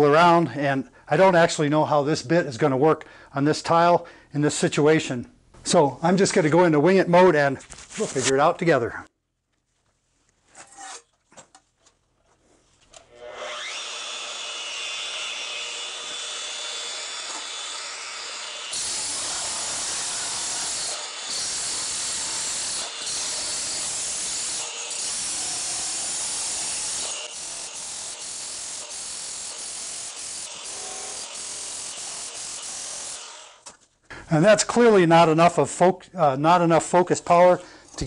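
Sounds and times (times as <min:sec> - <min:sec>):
rotary hammer chiselling tile: 0:18.7 - 0:33.2.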